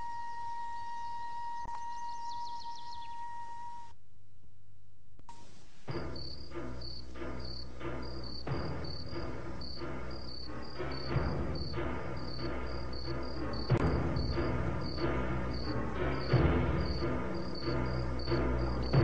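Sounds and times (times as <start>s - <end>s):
crickets chirping: 0.0s - 3.9s, 5.3s - 19.0s
background music: 5.4s - 19.0s.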